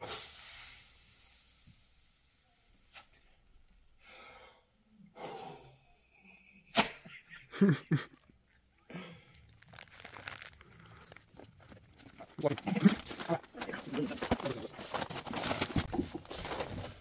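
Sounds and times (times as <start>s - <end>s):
handling rustling and scraping: 9.6s - 17.0s.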